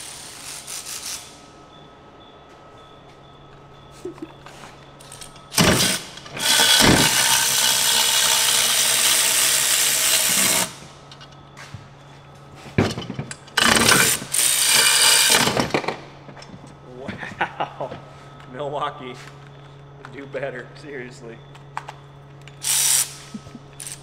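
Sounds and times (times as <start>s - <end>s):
electric ratchet whirring: 0.0s - 1.4s, 5.0s - 10.9s, 13.4s - 15.8s, 22.6s - 24.0s.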